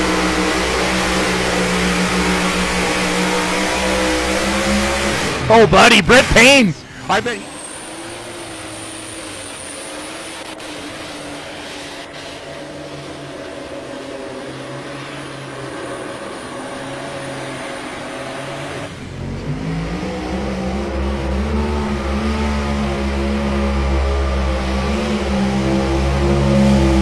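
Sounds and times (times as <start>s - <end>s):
deep supercharged engine revving: 0.0s - 5.5s, 18.7s - 27.0s.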